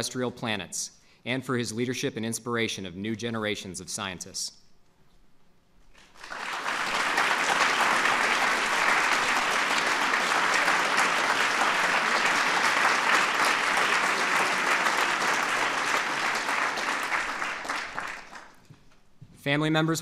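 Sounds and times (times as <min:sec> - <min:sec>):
audience applauding: 0:06.0 - 0:18.7.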